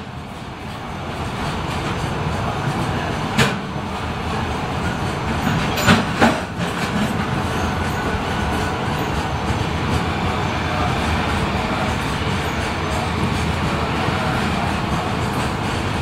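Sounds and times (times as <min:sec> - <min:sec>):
wheels clacking on rail: 0:00.0 - 0:16.0.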